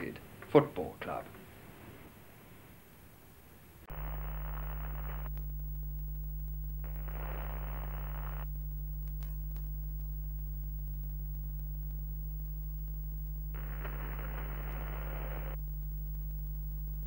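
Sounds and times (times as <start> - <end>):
low electrical hum: 0.0 - 17.0
static hiss bursts: 3.9 - 17.0.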